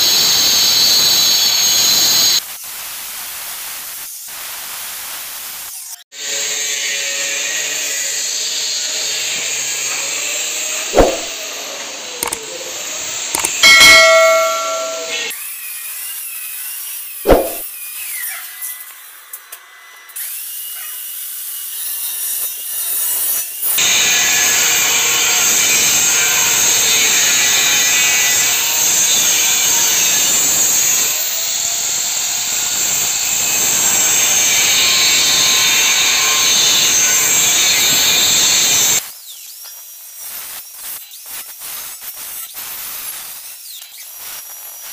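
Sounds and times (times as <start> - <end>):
angle grinder cutting steel pipe: 12.2 - 16.4, 21.8 - 39.0
sharp clicks: 13.4 - 13.6
electronic jingle: 13.6 - 15.3.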